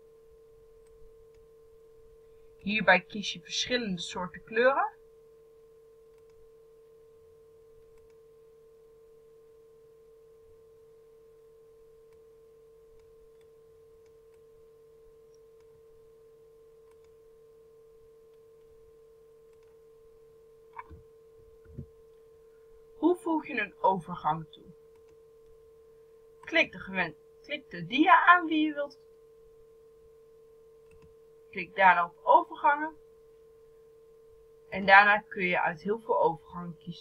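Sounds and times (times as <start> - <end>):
faint electrical hum: 0.0 - 37.0
faint ticks: 0.8 - 1.5, 6.1 - 6.4, 7.8 - 8.2, 12.1 - 12.3, 12.9 - 14.5, 16.8 - 17.2, 18.3 - 18.7, 19.4 - 19.8, 24.9 - 25.6.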